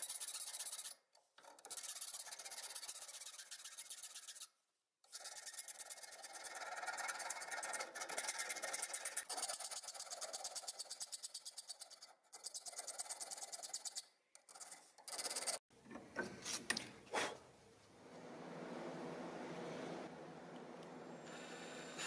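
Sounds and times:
hand file rasping on metal: 1.6s - 4.5s.

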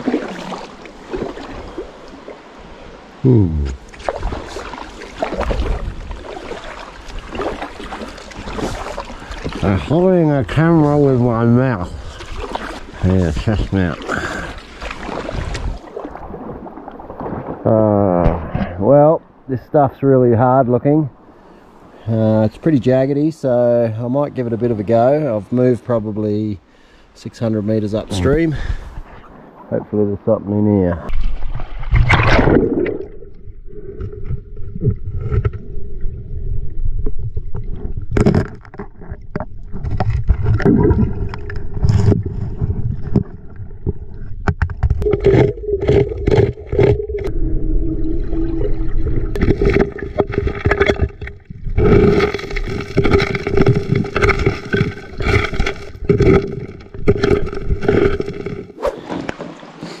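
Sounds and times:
river water running: 0.0s - 18.0s, 45.0s - 60.0s
rock and gravel scraping: 49.3s - 60.0s.

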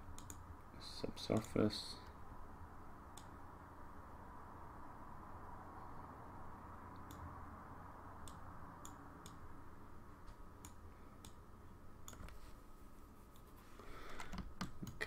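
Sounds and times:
low room hum: 0.0s - 15.0s
computer mouse clicks: 0.1s - 0.4s, 1.3s - 1.6s, 3.1s - 3.4s, 6.9s - 7.3s, 8.2s - 9.4s, 10.6s - 11.4s, 12.0s - 12.4s.

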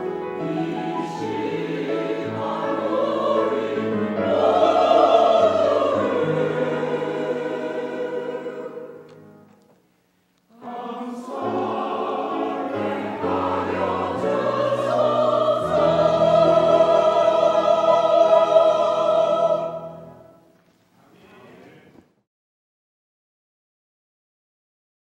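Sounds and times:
church choir singing: 0.0s - 9.5s, 10.5s - 20.5s.

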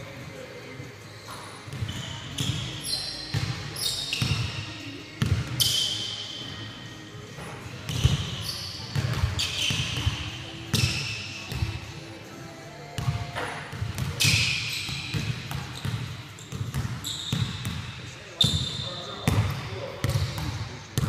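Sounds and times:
sneakers squeaking on wood: 1.3s - 6.3s, 7.9s - 11.7s, 13.7s - 17.8s, 18.4s - 19.4s.

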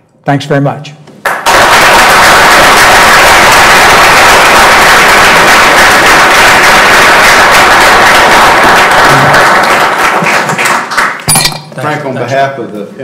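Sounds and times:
audience applauding: 1.2s - 11.3s.

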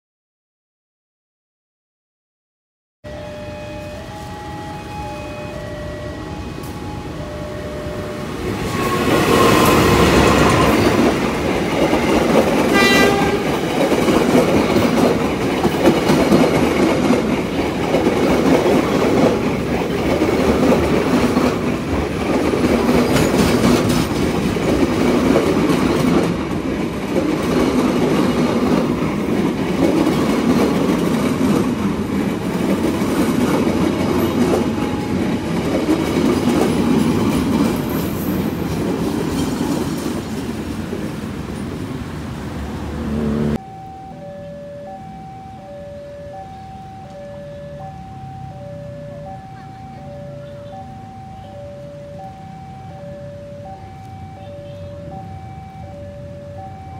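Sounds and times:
locomotive horn: 3.1s - 11.0s, 12.6s - 13.8s, 43.0s - 43.6s
clickety-clack of train wheels: 8.5s - 41.8s.

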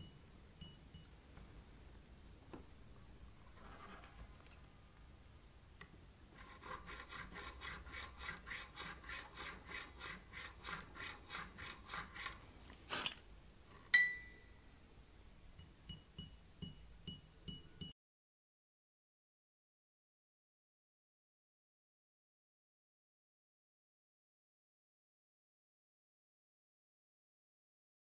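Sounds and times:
sharp metallic click with ring: 14.0s - 14.4s.

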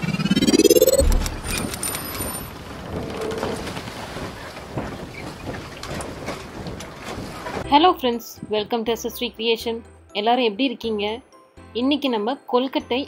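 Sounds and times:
rising tone sweep: 0.0s - 2.0s
low boom: 0.2s - 1.8s.

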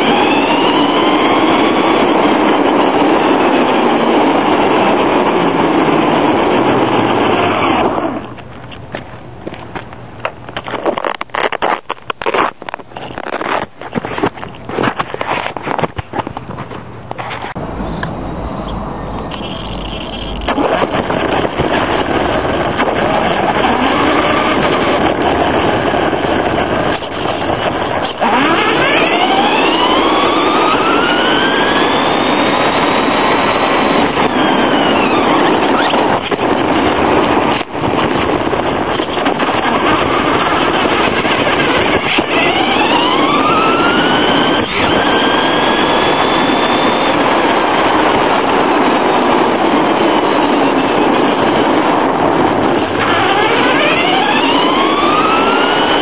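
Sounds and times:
rising motor whine: 0.0s - 8.4s, 17.4s - 38.5s, 39.2s - 48.5s, 50.6s - 56.0s
rc truck driving on asphalt: 0.0s - 56.0s.

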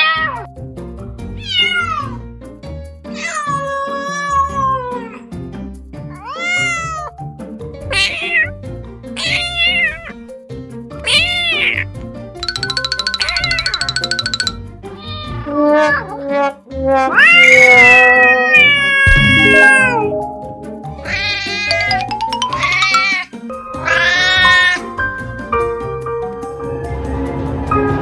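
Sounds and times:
background music: 6.6s - 15.1s, 19.0s - 28.0s
kitten meowing: 11.0s - 11.8s.

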